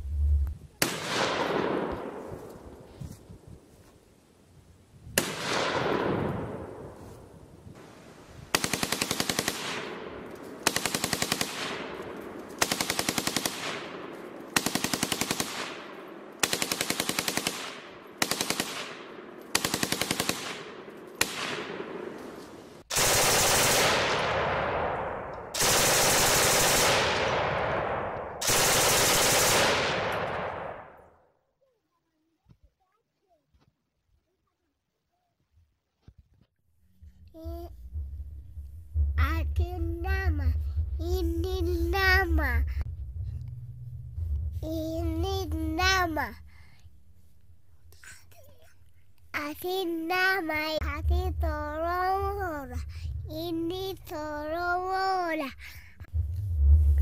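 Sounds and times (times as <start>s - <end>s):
machine-gun fire: 8.5s - 22.2s, 22.9s - 31.0s.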